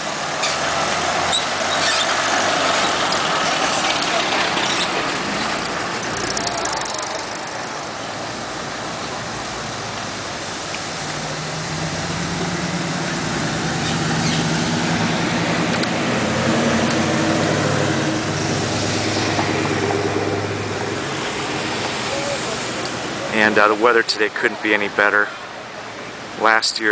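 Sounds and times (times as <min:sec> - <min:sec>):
car engine passing slowly: 0:00.0 - 0:26.5
street traffic: 0:00.0 - 0:26.9.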